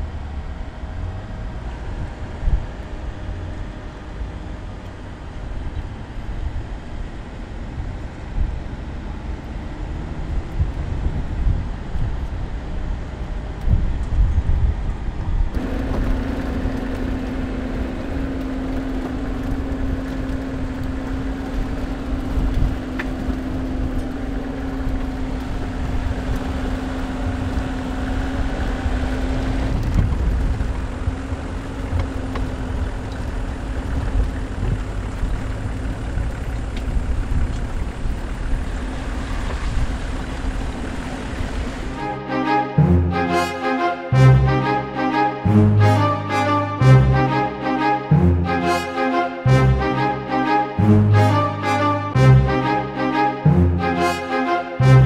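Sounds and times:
engine running steadily: 0.0s - 43.4s.

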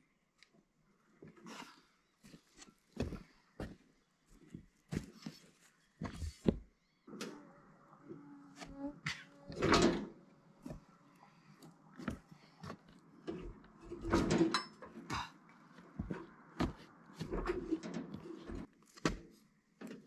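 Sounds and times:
metal frame clunking and scraping: 8.6s - 10.9s, 12.0s - 20.0s.

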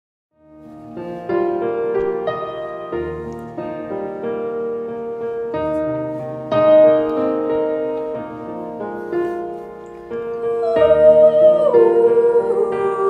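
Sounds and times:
gentle piano chords: 0.4s - 13.0s.

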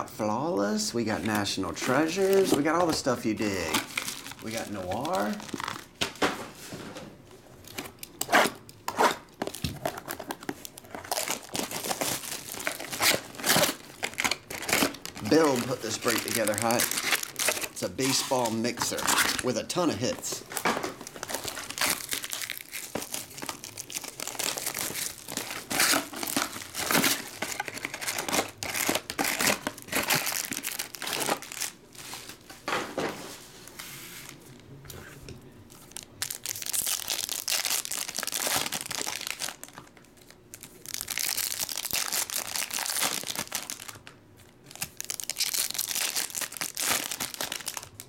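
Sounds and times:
foil wrappers tearing and crinkling: 1.3s - 6.0s, 7.7s - 32.4s, 35.9s - 48.0s.

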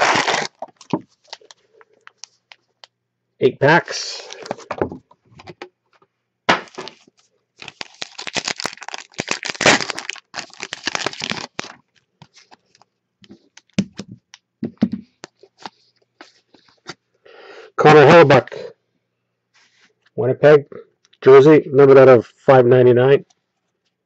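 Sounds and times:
foil wrapper tearing and crinkling: 0.0s - 1.5s, 6.6s - 12.8s.

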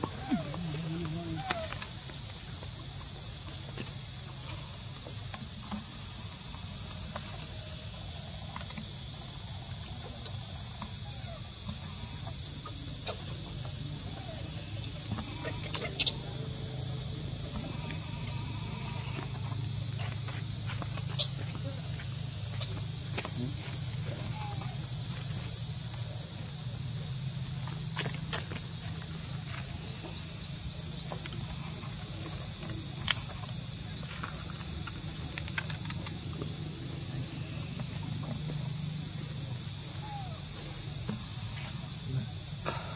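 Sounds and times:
high-pitched insect drone: 0.0s - 42.9s
faint chirps and clicks: 15.1s - 16.5s, 17.7s - 24.6s, 30.8s - 37.2s.

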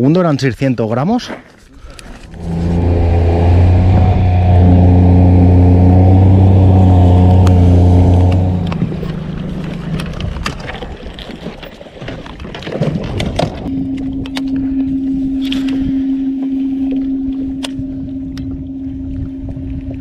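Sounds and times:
wind: 0.0s - 20.0s
outboard motor running: 1.9s - 20.0s
rushing water: 2.0s - 13.7s.

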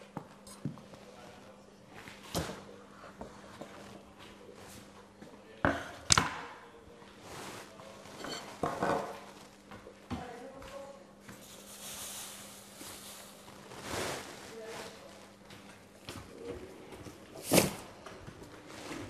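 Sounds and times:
pots and dishes clattering: 8.0s - 9.3s.

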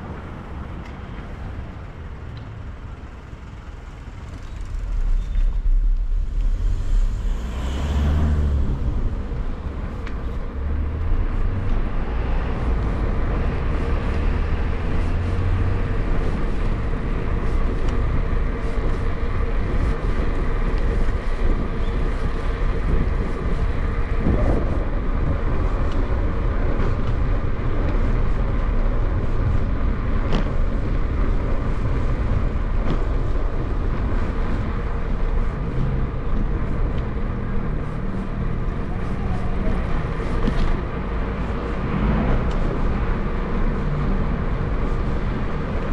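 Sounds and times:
street traffic rumble: 0.0s - 45.9s
vehicle passing: 3.8s - 11.7s.

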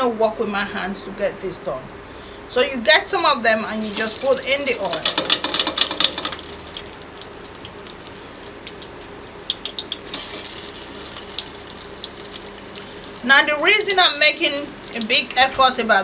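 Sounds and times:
slices sizzling in hot oil: 3.8s - 16.0s.

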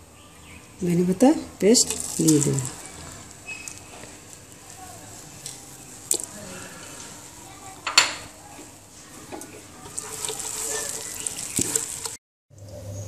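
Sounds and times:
spatula scraping a pan: 9.6s - 12.2s.

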